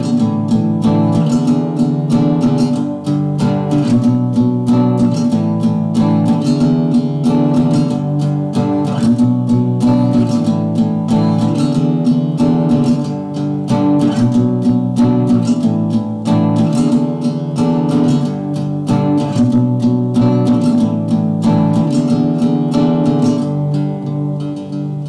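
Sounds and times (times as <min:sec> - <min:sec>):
strummed acoustic guitar: 0:00.0 - 0:25.0.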